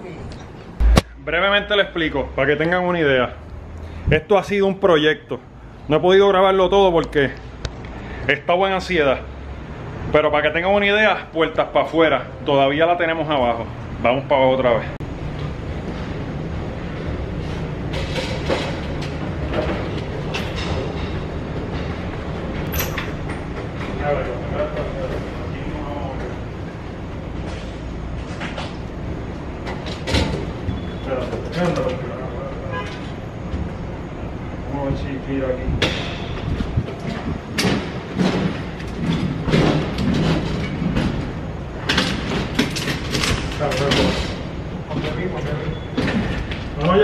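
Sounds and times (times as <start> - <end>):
knocks and clicks: 0.8 - 1.2
steady low rumble: 0.8 - 1.6.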